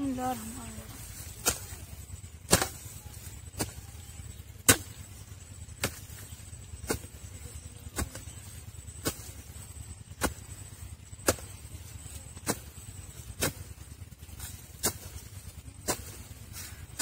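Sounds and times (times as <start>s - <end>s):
steady low rumble: 0.0s - 17.0s
hoe chopping into dry soil: 1.3s - 1.8s, 2.5s - 2.9s, 3.5s - 3.8s, 4.6s - 5.2s, 5.8s - 7.2s, 9.0s - 13.7s, 14.3s - 17.0s.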